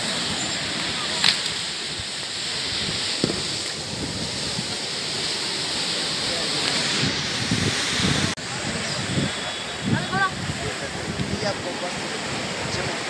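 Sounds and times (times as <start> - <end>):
sea surf against rocks: 0.0 - 13.0
wind on microphone: 0.0 - 13.0.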